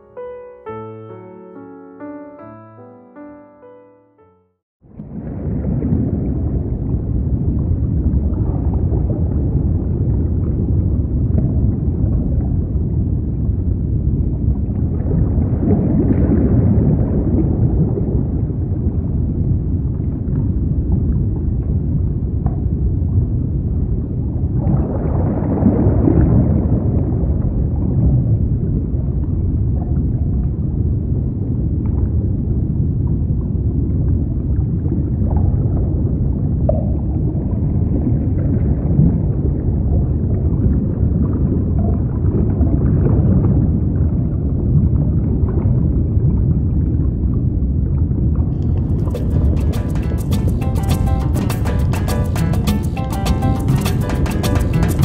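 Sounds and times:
underwater gurgling rumble: 0:04.8 - 0:51.4.

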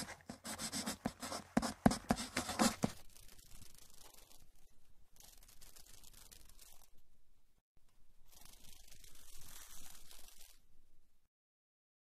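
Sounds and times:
pencil scratching on paper: 0:00.0 - 0:03.0
faint rubbing on paper: 0:00.0 - 0:04.5, 0:05.2 - 0:07.0, 0:08.3 - 0:10.6.

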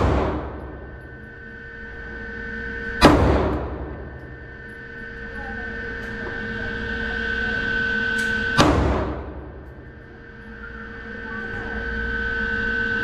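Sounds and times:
pistol shots with echo: 0:00.0 - 0:00.7, 0:08.6 - 0:09.4
steady hum: 0:00.0 - 0:13.0.

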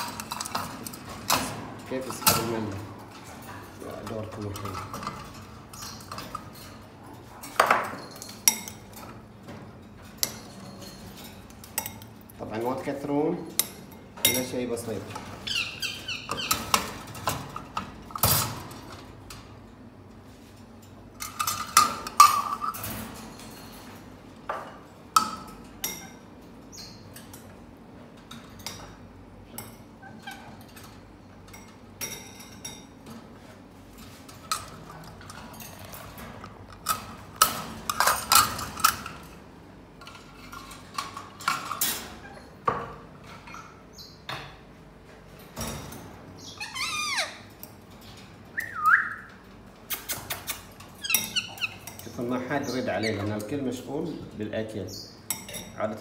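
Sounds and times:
feeding dishes clinking: 0:00.0 - 0:15.4, 0:16.0 - 0:44.3
wire cage doors rattling: 0:00.0 - 0:43.9.

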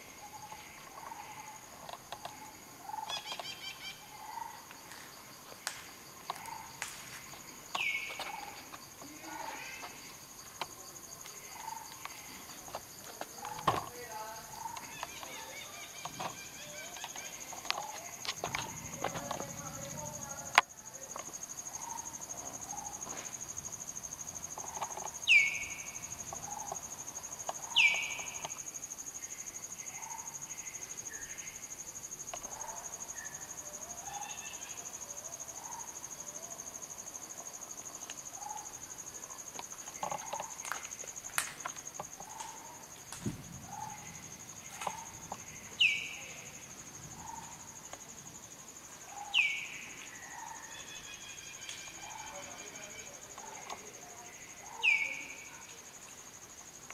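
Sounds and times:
insects whining: 0:00.0 - 0:56.9.

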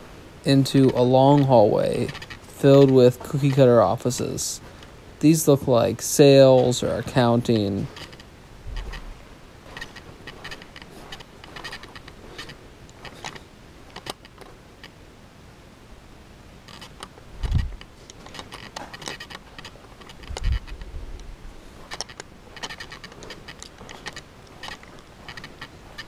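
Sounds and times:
camera handling clicks and rattles: 0:00.9 - 0:04.9, 0:07.9 - 0:09.0, 0:09.7 - 0:15.0, 0:16.7 - 0:20.9, 0:21.8 - 0:26.0.

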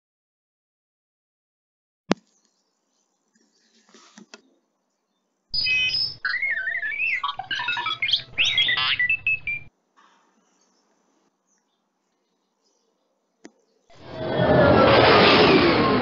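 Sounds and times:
electronic beeps and chirps: 0:05.6 - 0:09.7
low hum: 0:14.0 - 0:16.0.

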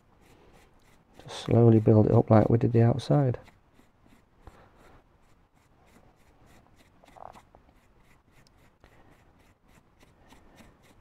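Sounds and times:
paintbrush scratching on foam: 0:00.0 - 0:11.0.

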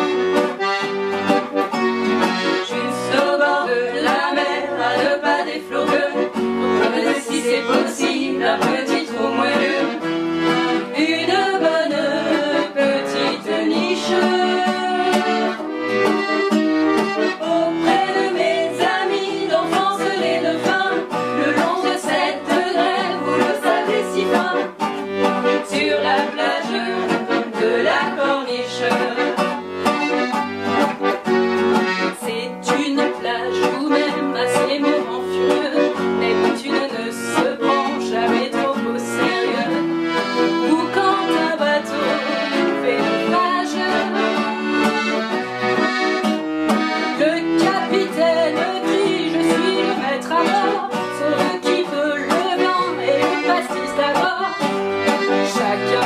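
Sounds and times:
classical guitar bass notes: 0:00.0 - 0:34.5
button accordion playing chords: 0:00.0 - 0:56.0
women singing: 0:02.3 - 0:15.7, 0:17.4 - 0:29.6, 0:32.0 - 0:45.2, 0:47.1 - 0:56.0.

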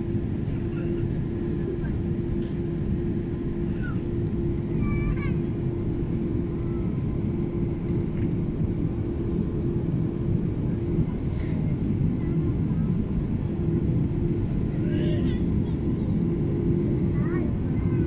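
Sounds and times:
airliner cabin engine rumble: 0:00.0 - 0:18.0.

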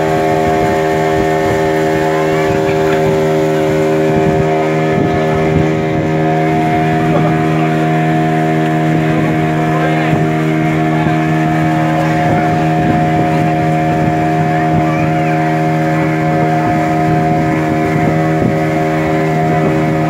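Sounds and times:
motorboat engine droning: 0:00.0 - 0:20.0
water rushing along hull: 0:00.0 - 0:20.0.

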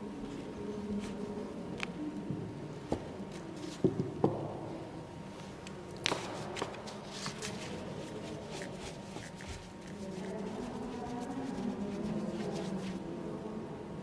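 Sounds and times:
paper rustling: 0:06.0 - 0:13.0.

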